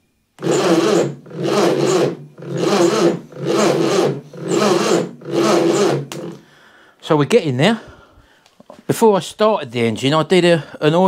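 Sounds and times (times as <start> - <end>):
starter motor cranking engine: 0.4 - 6.5.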